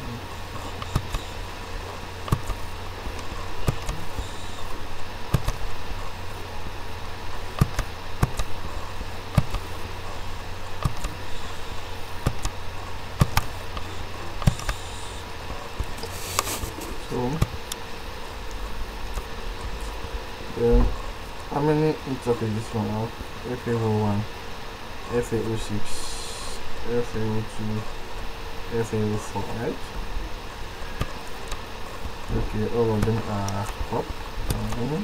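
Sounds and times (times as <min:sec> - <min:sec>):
low electrical hum: 0:00.0 - 0:35.0
computer mouse clicking: 0:00.8 - 0:01.3, 0:02.3 - 0:02.6, 0:03.6 - 0:04.6, 0:05.3 - 0:05.6, 0:07.6 - 0:08.5, 0:09.3 - 0:09.7, 0:10.8 - 0:11.2, 0:12.2 - 0:12.6, 0:13.2 - 0:14.9.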